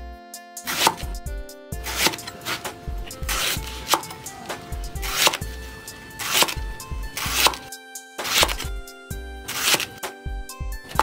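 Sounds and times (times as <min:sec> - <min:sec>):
background music: 0:00.0 - 0:11.0
axe chopping onto wooden board: 0:00.7 - 0:01.2, 0:01.8 - 0:08.8, 0:09.4 - 0:10.2.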